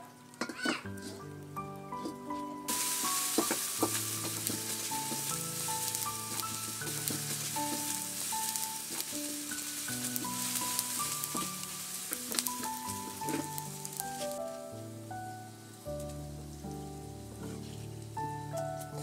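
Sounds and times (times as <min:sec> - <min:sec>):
background music: 0:00.0 - 0:19.0
spatula scraping a wok: 0:02.0 - 0:14.4
food sizzling in hot oil: 0:02.7 - 0:18.6.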